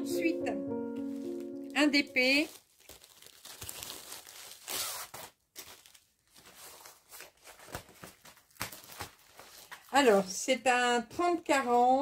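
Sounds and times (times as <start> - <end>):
plastic packaging rustling: 0.9 - 10.3.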